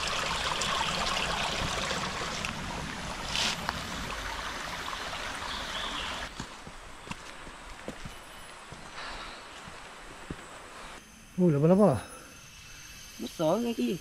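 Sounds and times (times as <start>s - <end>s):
stream flowing and trickling: 0.0s - 11.0s.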